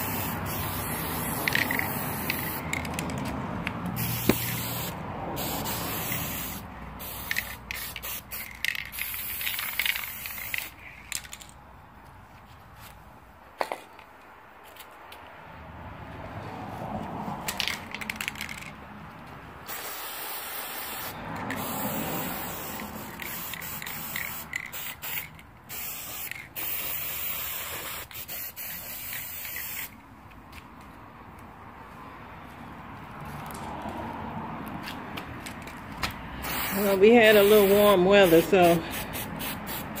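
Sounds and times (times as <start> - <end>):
spray paint can hissing: 0.0 - 11.5, 19.6 - 30.0, 36.4 - 40.0.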